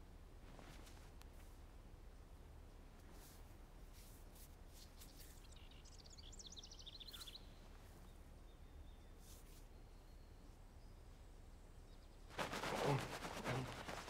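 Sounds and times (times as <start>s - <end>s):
faint quick bird chirps: 5.0s - 7.6s.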